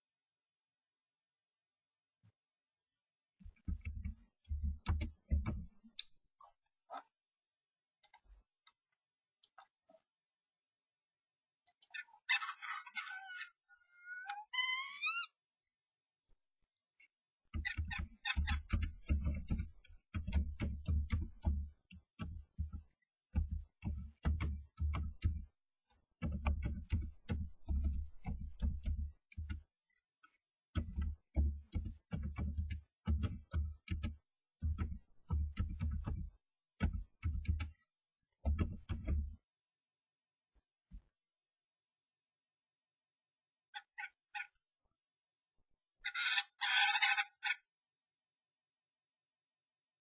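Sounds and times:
birds scraping and tapping in nest box: 17.6 - 25.5.

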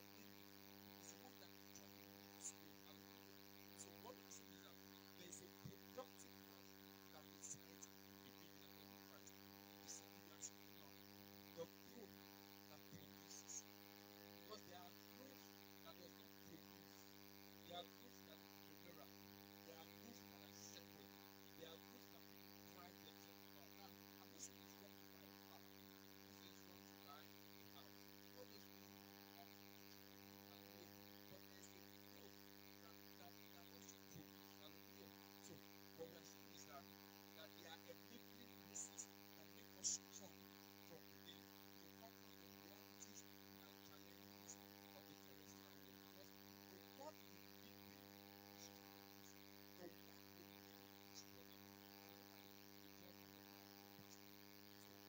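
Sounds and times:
faint electrical mains hum: 0.0 - 55.0.

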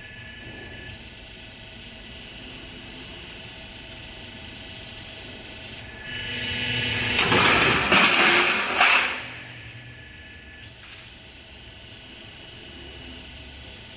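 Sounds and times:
machine running with low hum: 0.0 - 13.9
sharp metal crashes: 7.0 - 9.4.

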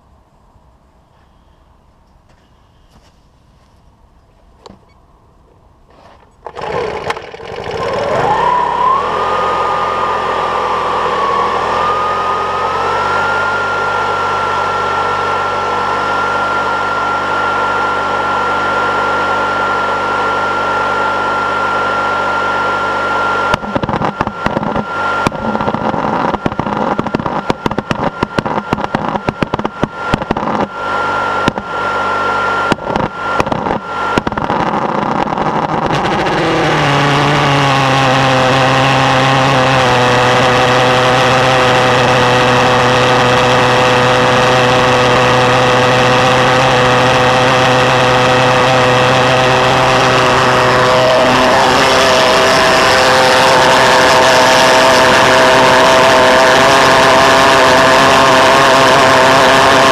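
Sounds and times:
air blower whining: 5.8 - 59.9
pulse jet popping and sputtering: 23.5 - 30.8, 31.4 - 31.7, 32.7 - 59.9.

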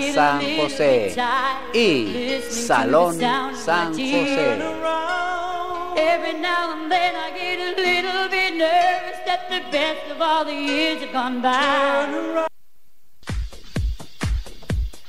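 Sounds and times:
voices singing with vibrato: 0.0 - 12.5
dance track with kick drum: 13.3 - 15.0.

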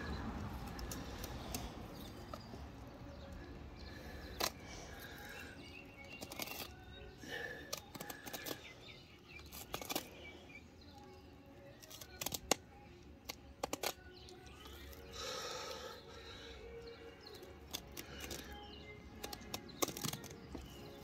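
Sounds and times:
knife scraping fish: 6.1 - 6.8, 9.4 - 10.2, 11.8 - 12.6.

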